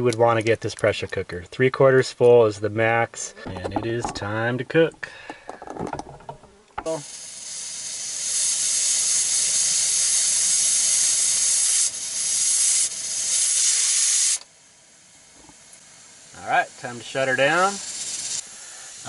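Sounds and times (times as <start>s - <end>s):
pressure cooker steam hissing: 6.8s - 19.0s.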